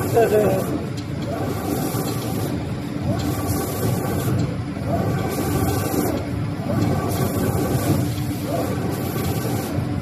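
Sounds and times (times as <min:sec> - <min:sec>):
machine rumble and hum: 0:00.0 - 0:10.0
spray guns hissing: 0:01.4 - 0:06.2, 0:06.8 - 0:09.8.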